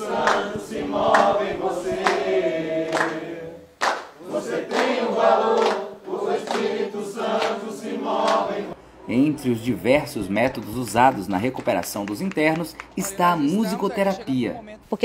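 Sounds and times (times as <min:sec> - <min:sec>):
group singing in unison: 0:00.0 - 0:08.8.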